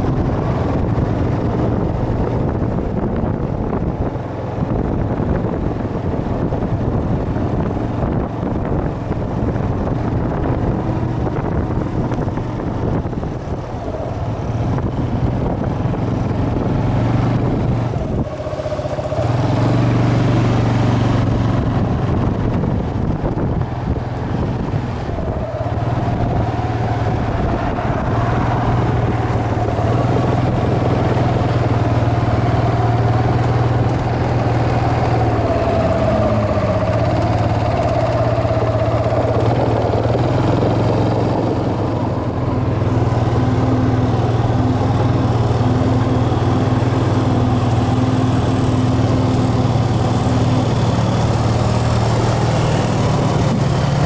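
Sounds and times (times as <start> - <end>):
engine droning: 0.0 - 54.0
wavering high whine: 17.5 - 20.7, 24.6 - 54.0.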